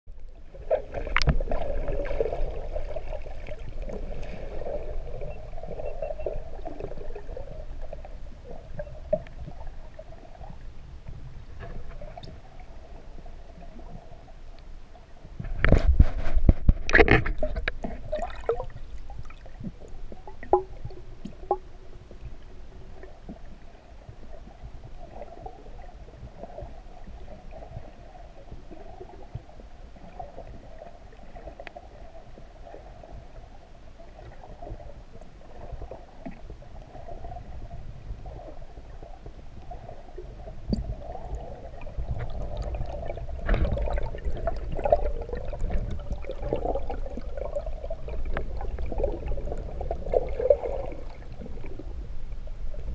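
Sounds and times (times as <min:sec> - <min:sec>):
muffled underwater rumble: 0:00.1 - 0:52.9
faint gurgling: 0:35.5 - 0:52.0.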